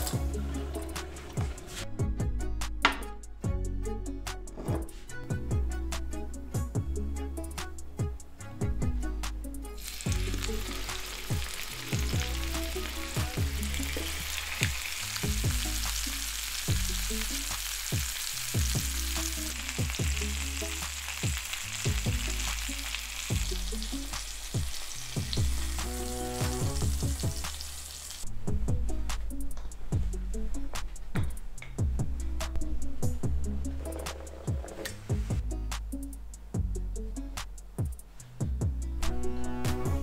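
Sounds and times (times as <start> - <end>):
background music with a beat: 0.0 - 40.0
chicken sizzling in a pan: 9.8 - 28.3.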